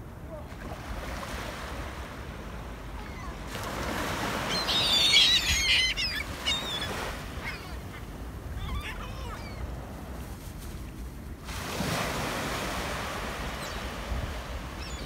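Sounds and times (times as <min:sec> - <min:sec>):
small waves breaking on sand: 0:00.4 - 0:10.8, 0:11.4 - 0:15.0
gulls calling: 0:03.0 - 0:09.7, 0:14.6 - 0:15.0.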